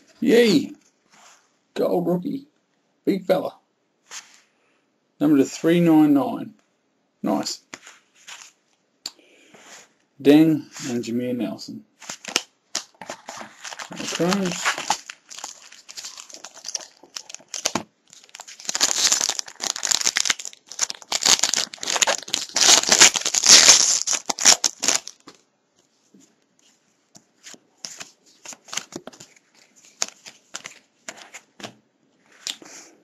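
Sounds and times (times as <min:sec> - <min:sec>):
cards rustling and clicking: 0:12.0 - 0:25.4, 0:27.2 - 0:31.8
wrapper crinkling and tearing: 0:12.0 - 0:25.4, 0:27.9 - 0:31.4.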